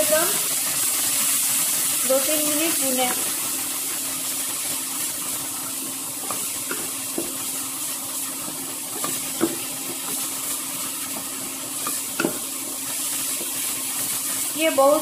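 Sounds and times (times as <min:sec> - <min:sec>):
spices sizzling in a frying pan: 0:00.0 - 0:15.0
spatula tapping and scraping pan: 0:06.2 - 0:07.5, 0:08.4 - 0:13.7.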